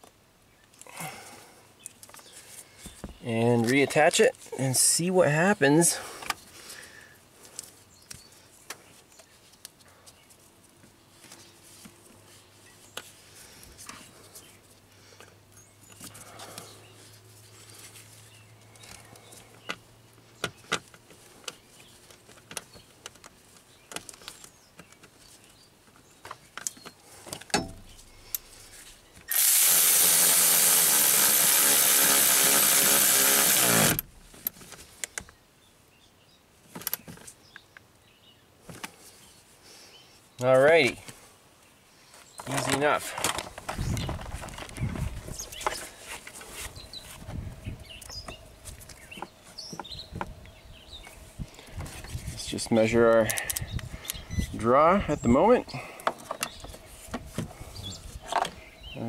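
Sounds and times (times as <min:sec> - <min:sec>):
cordless drill running: 0:29.3 - 0:34.0.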